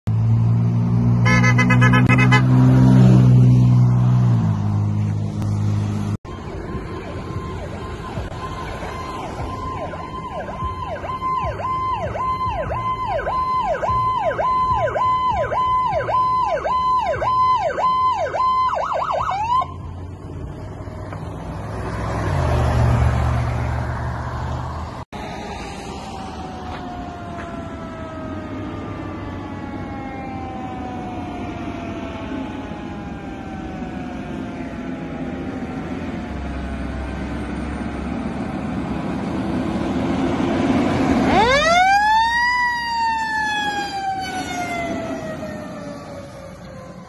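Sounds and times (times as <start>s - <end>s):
low air horn blast: 1.2s - 2.9s
electronic siren sweeping: 1.2s - 3.3s, 6.3s - 20.0s, 25.2s - 35.6s, 41.0s - 47.0s.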